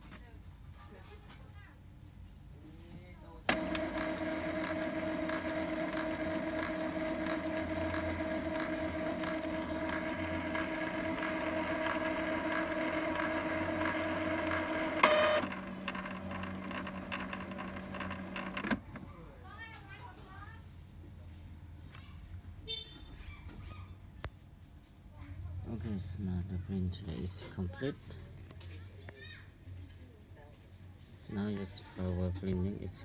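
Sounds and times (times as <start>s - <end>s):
printer mechanism whine: 3.5s - 19.0s.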